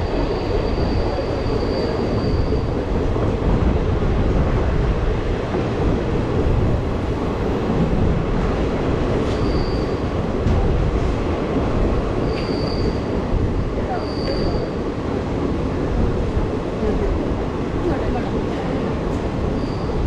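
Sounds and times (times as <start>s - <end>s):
high wheel squeal: 0.0s - 2.8s, 9.2s - 10.2s, 12.2s - 14.8s, 19.5s - 20.0s
train wheels rumbling on rail: 0.0s - 20.0s.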